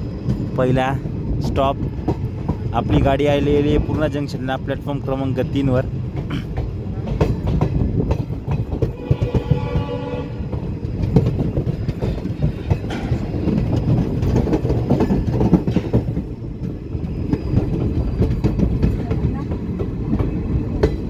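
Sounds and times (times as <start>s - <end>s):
train rumbling and clattering: 0.0s - 21.0s
train horn: 8.8s - 10.7s.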